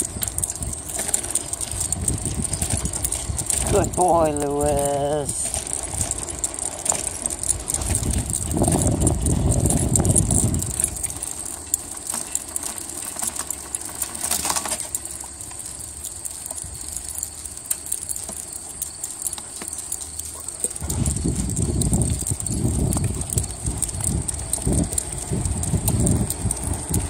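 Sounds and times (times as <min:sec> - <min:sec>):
wind buffeting microphone: 0:00.0 - 0:11.7, 0:20.8 - 0:27.0
jogging footsteps on pavement: 0:00.0 - 0:27.0.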